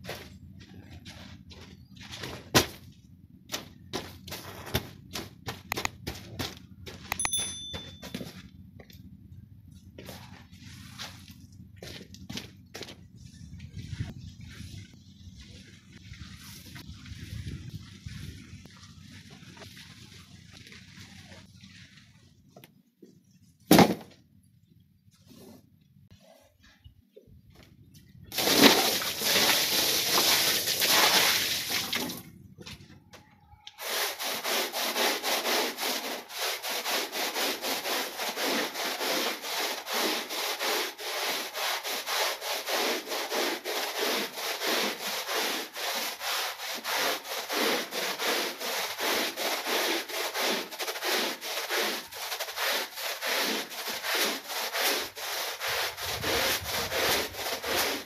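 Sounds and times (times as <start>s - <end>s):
brush scrubbing wet rug: 10.0s - 22.6s, 28.4s - 32.0s, 33.8s - 58.0s.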